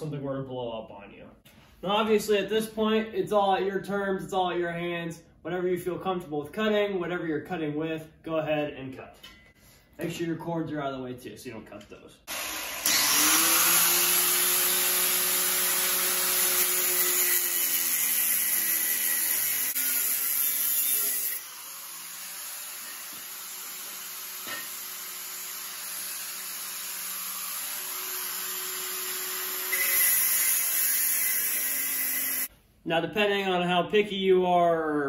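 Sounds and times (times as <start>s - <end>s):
angle grinder cutting steel: 12.3s - 32.5s.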